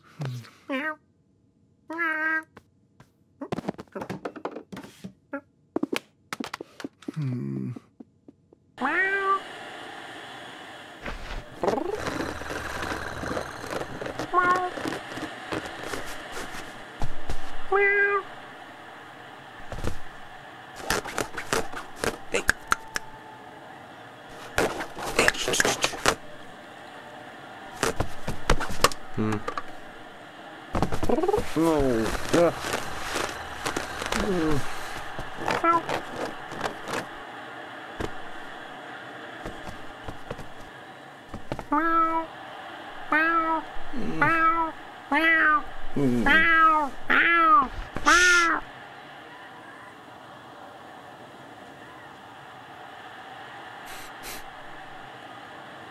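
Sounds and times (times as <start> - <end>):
cartoon cat meow: 0.7 - 1.0, 1.9 - 2.5, 8.8 - 9.4, 44.2 - 45.6, 46.2 - 48.6
claws scratching fabric: 11.1 - 17.4, 20.8 - 22.5, 24.3 - 26.2, 30.9 - 37.1
brief low vocal sound: 29.1 - 29.5.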